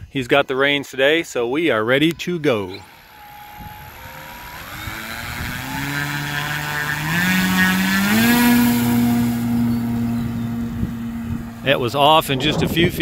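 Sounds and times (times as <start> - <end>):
electric motor and propeller whine: 2.4 - 13.0.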